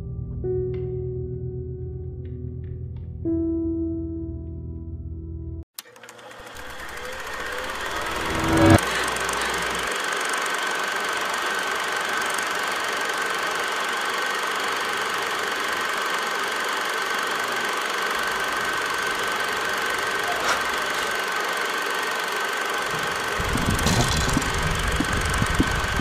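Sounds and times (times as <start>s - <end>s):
mechanical drone with high whine: 6.3s - 13.3s, 14.7s - 26.0s.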